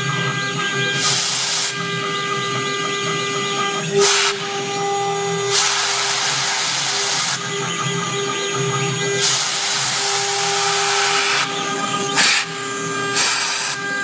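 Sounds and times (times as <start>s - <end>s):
spindle whine: 0.0s - 14.0s
hissing cutting bursts: 1.0s - 1.8s, 3.8s - 4.5s, 5.4s - 7.5s, 9.2s - 14.0s.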